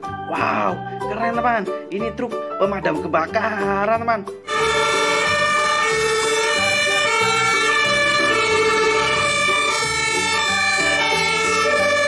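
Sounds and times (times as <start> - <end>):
two-tone emergency sirens: 4.5 - 12.0.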